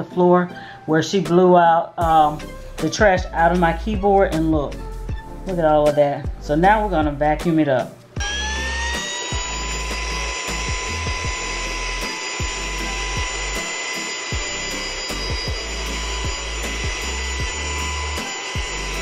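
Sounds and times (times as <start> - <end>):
handheld vacuum whining: 8.2 - 19.0.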